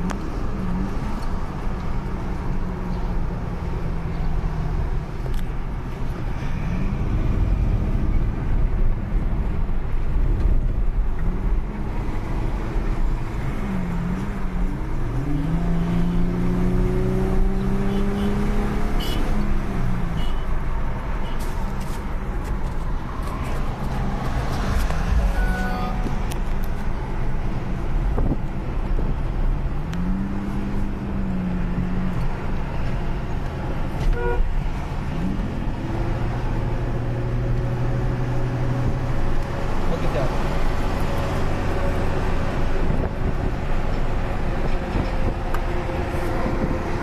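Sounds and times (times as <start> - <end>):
road and wind noise: 0.0 - 47.0
car engine accelerating: 6.4 - 19.9, 22.7 - 27.6.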